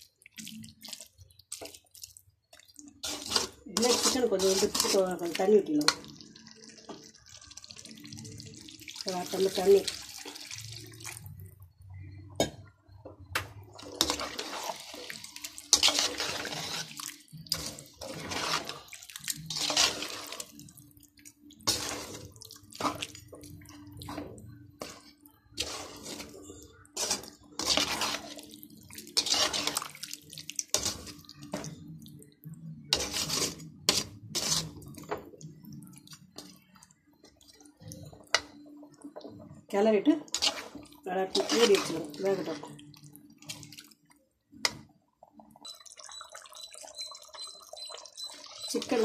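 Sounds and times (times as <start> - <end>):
ladle sloshing and scraping in pot: 0.0 - 49.0.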